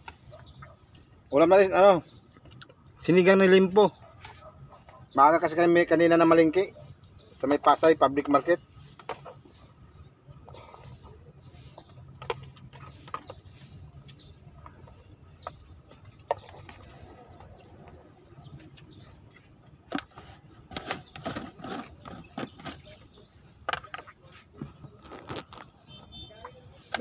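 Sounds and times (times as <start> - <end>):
plastic containers clicking and knocking: 11.7 - 25.8.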